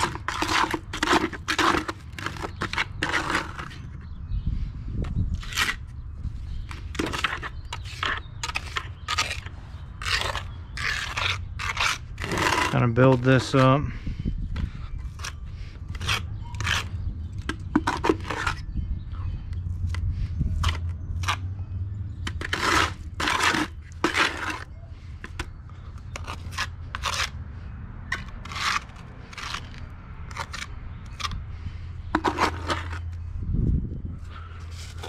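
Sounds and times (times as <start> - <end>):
trowel scraping wet cement: 0.0 - 4.0, 5.3 - 5.9, 6.6 - 14.0, 15.0 - 18.7, 20.6 - 21.4, 22.2 - 27.4, 28.1 - 31.4, 32.1 - 33.2, 34.7 - 35.0.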